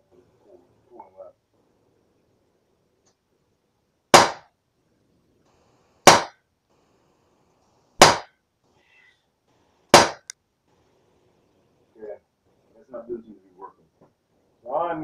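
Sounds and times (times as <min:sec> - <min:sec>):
bb gun shots cracking: 0:04.1 - 0:04.5, 0:06.0 - 0:06.4, 0:08.0 - 0:08.3, 0:09.9 - 0:10.3.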